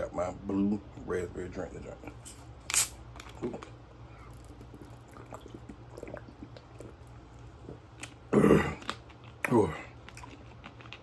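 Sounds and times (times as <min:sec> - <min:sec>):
person drinking from plastic bottle: 0:04.2 - 0:10.4.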